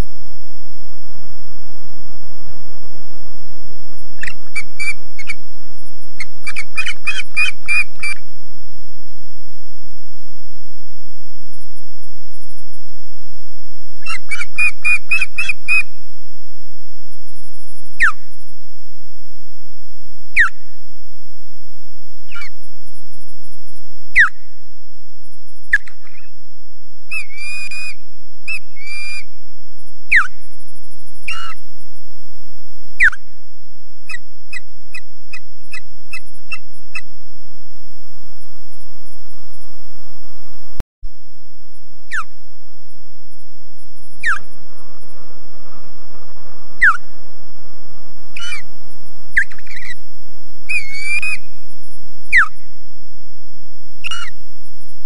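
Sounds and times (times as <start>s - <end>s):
osprey chirping whistles: 4.2s - 5.4s, 6.2s - 8.2s, 14.0s - 15.9s, 18.0s - 18.2s, 20.4s - 20.6s, 24.1s - 24.5s, 27.1s - 29.3s, 30.1s - 30.4s, 31.2s - 31.6s, 33.0s - 33.3s, 42.1s - 42.3s, 44.2s - 44.6s, 46.8s - 47.1s, 48.3s - 48.7s, 49.3s - 50.0s, 50.7s - 51.5s, 52.3s - 52.6s, 54.0s - 54.4s
osprey sharp descending calls: 44.2s - 44.5s, 46.8s - 47.0s, 48.4s - 48.7s.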